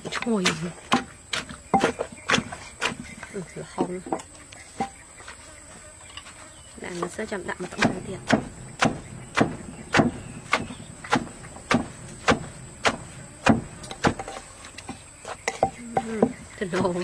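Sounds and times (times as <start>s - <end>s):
pestle pounding in mortar: 0.0s - 3.1s, 7.7s - 14.4s.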